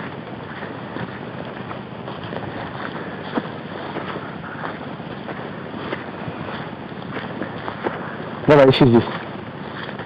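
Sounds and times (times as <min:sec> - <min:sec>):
wind on microphone: 0:00.0 - 0:10.0.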